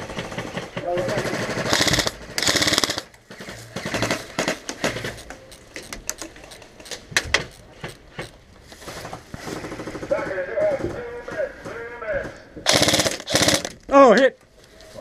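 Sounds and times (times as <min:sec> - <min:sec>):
airsoft rifle firing: 0:00.0 - 0:05.3, 0:12.7 - 0:13.8.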